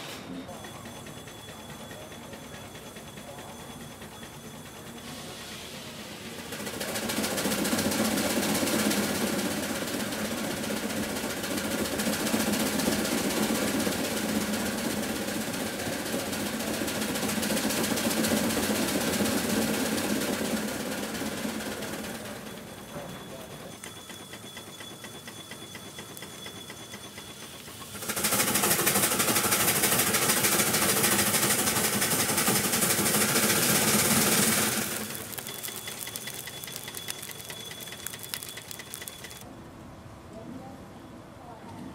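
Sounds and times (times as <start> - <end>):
steam traction engine exhaust beat: 0.5 - 39.4
mechanical clatter: 23.7 - 39.4
steam engine beat: 23.8 - 39.4.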